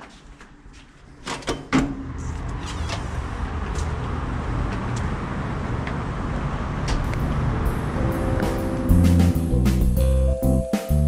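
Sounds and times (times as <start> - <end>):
outdoor noise rush: 2.1 - 9.5.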